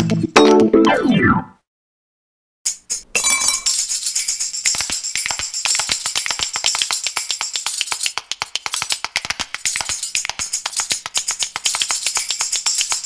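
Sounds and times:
music with fast percussion beat: 0.0s - 0.7s, 2.7s - 13.0s.

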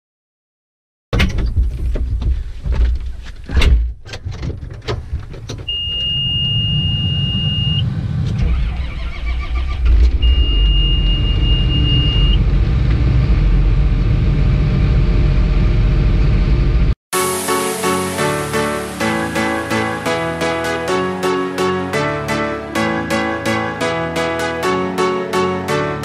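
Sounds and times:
high steady warning beep: 5.7s - 7.8s, 10.2s - 12.4s.

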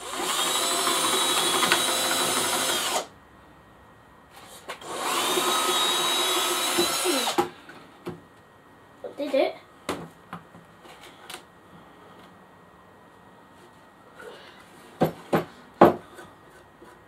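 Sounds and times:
cordless drill boring wood: 0.0s - 3.1s, 4.8s - 7.5s.

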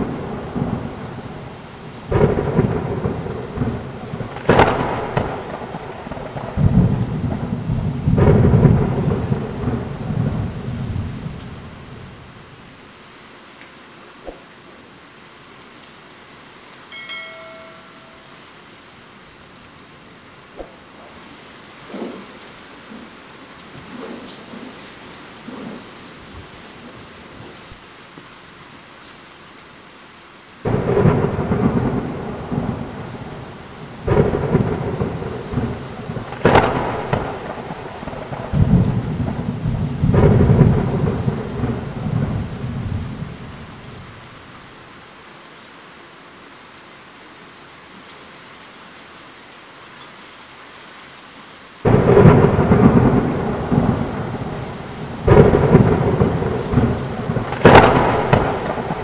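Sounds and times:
sharp thunderclap: 0.0s - 11.6s, 30.6s - 43.9s, 51.8s - 59.0s
thunder rolling: 0.0s - 12.2s, 30.6s - 44.3s, 51.8s - 59.0s
steady rain: 0.0s - 59.0s.

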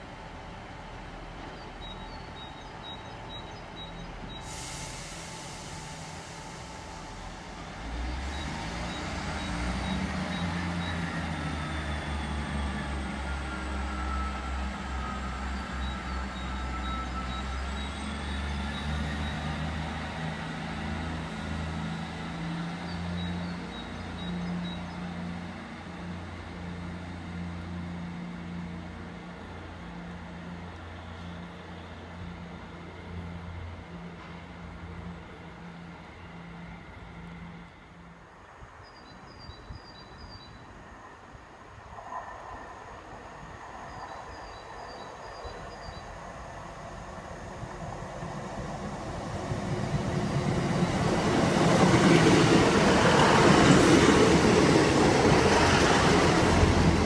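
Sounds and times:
diesel train engines accelerating: 0.0s - 57.0s
air hiss: 4.4s - 7.4s.

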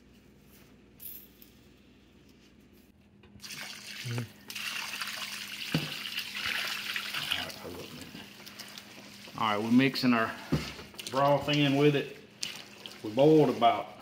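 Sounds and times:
broth splashing as it is poured: 3.4s - 10.0s, 10.9s - 14.0s.

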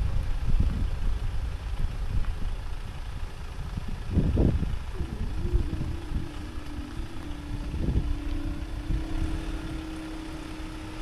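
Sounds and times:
car engine idling: 0.0s - 11.0s
wind on microphone: 0.0s - 11.0s
barrier machine humming: 4.6s - 11.0s.

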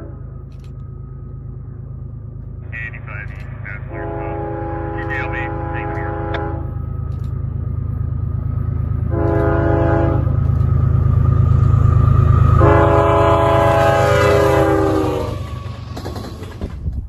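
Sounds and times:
locomotive air horn: 0.0s - 0.4s, 3.8s - 6.8s, 9.1s - 10.4s, 12.5s - 15.7s
locomotive engine drone: 0.0s - 17.0s.

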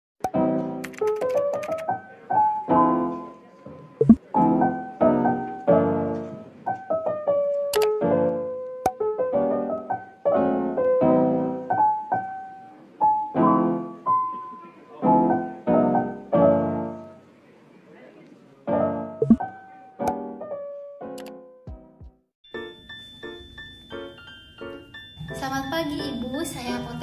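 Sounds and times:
piano music: 0.2s - 17.3s, 18.7s - 27.0s
sharp clicks: 0.8s - 1.9s.

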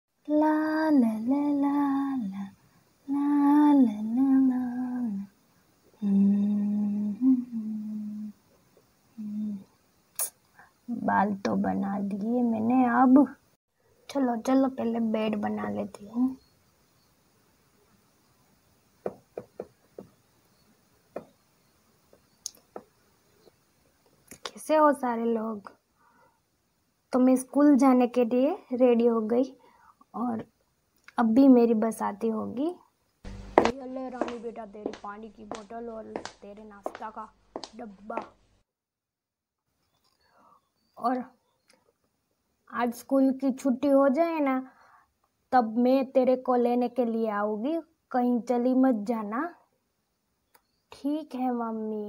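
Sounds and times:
woman humming a tune: 6.0s - 8.3s, 9.2s - 9.7s
toys knocking and tapping: 19.0s - 20.2s.

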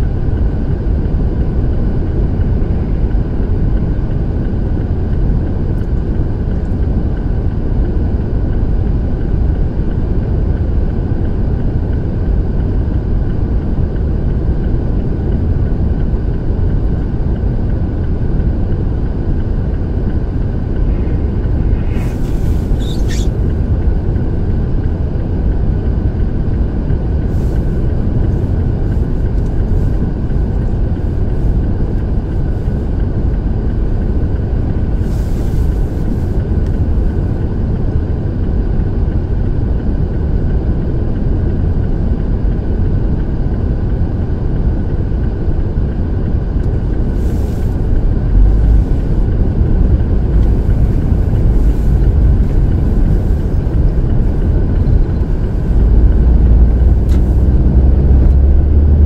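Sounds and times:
vehicle engine idling: 11.7s - 37.7s, 46.3s - 59.0s
traffic passing: 20.2s - 24.3s
brief high squeal: 21.9s - 23.4s.

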